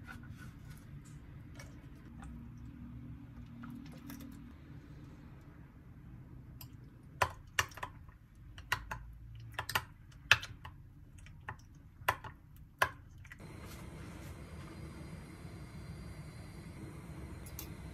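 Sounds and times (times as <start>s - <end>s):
hard objects clicking and tapping: 6.6s - 10.8s.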